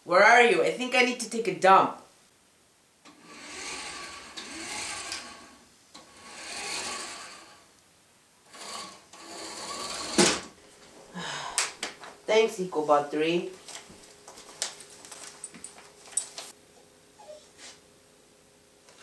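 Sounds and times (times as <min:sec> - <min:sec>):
toy motor and wheels whirring: 0:03.2 - 0:07.6, 0:08.5 - 0:10.2.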